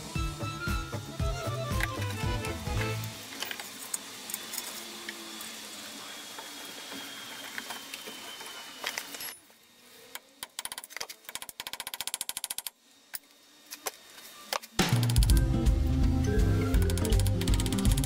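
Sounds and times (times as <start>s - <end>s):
rapid ratchet clicks: 10.4s - 12.8s, 14.8s - 15.4s, 16.8s - 18.0s.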